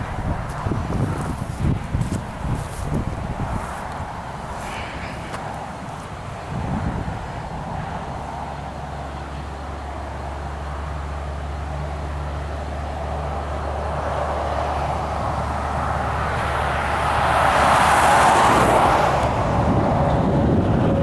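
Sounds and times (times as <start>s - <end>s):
vehicle passing close by: 0.0s - 21.0s.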